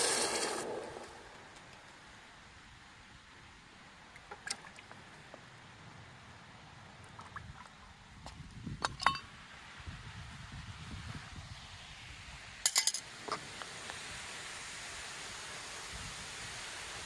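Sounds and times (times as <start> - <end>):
metal ingot clanking on asphalt: 8.8 - 9.3, 12.6 - 13.4.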